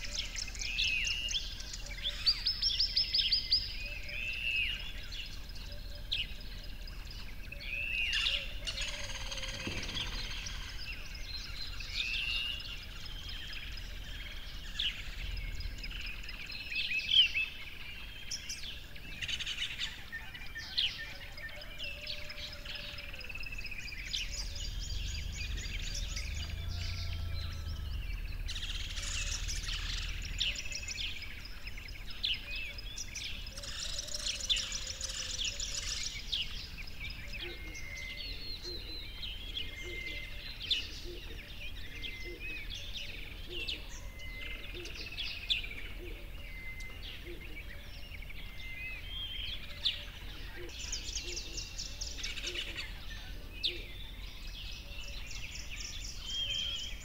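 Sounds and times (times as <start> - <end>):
birds chirping and calling: 0.0 - 57.0
faint low rumble: 9.4 - 17.1, 23.5 - 33.6.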